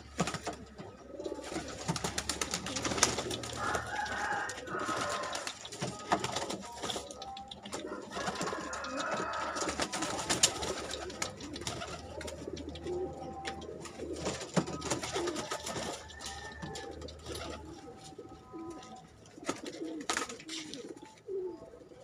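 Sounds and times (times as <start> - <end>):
wings flapping: 0.0 - 21.1
pigeons cooing: 0.0 - 22.0
sharp clicks: 1.9 - 17.6.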